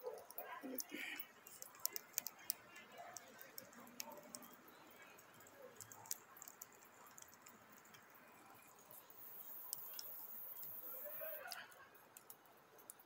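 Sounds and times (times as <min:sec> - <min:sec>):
wood fire crackling: 0:00.0 - 0:13.0
high steady hiss: 0:06.7 - 0:13.0.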